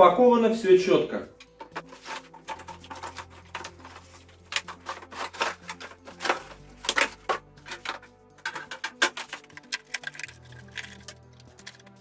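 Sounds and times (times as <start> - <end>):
cardboard rustling and scraping: 1.6 - 9.6.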